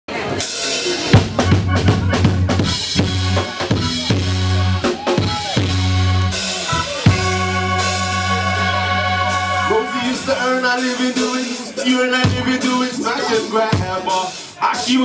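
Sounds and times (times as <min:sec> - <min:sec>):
drum kit playing: 0:00.1 - 0:15.0
low bass line: 0:01.2 - 0:11.3.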